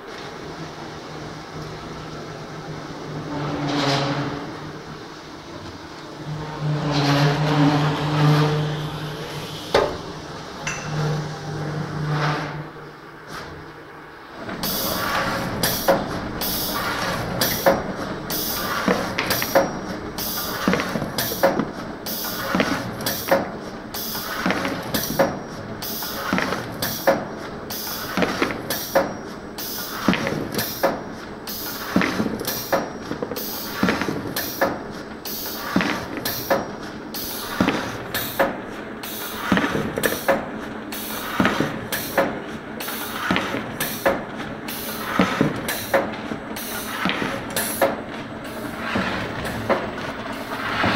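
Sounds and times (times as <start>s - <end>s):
low machine hum: 0.0s - 22.1s
machine hiss: 14.6s - 19.6s, 20.2s - 29.0s, 29.6s - 32.8s, 33.4s - 42.2s, 46.6s - 48.8s.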